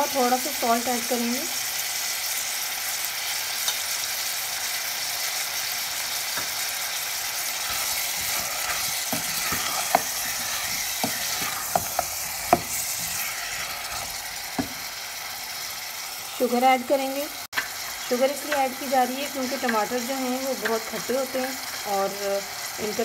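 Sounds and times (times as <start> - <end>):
tomatoes sizzling in oil: 0.0 - 23.0
wooden spoon knocking on pan: 8.2 - 13.2, 14.5 - 14.9.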